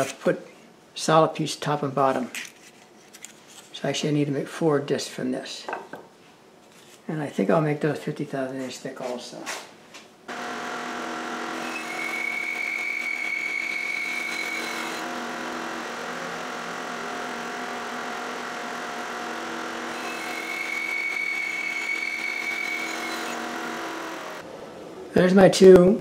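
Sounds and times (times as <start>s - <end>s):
band saw cutting wood: 10.3s - 24.4s.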